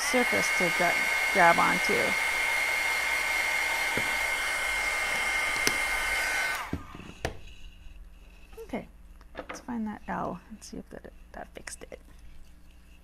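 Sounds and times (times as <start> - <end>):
heat tool blowing with high whine: 0.0 - 7.6.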